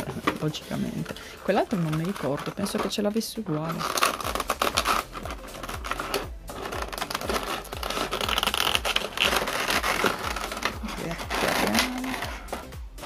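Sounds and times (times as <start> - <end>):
soft background music beat: 0.0 - 13.0.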